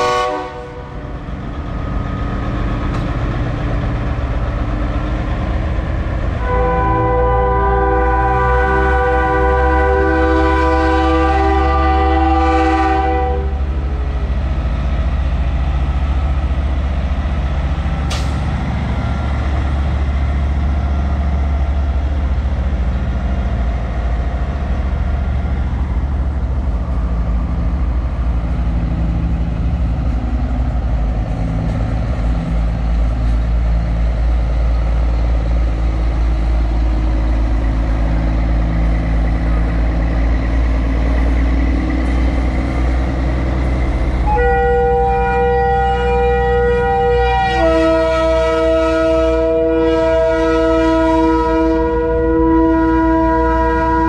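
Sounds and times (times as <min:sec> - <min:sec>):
truck air horn: 0:00.0 - 0:00.9, 0:06.4 - 0:13.6, 0:44.2 - 0:54.0
diesel truck engines rumbling: 0:00.0 - 0:54.0.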